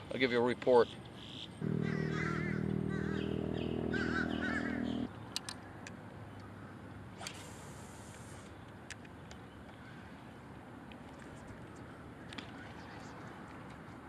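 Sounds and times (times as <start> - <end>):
chirping bird calls: 0.8 - 5.1
steady low hum: 1.6 - 5.1.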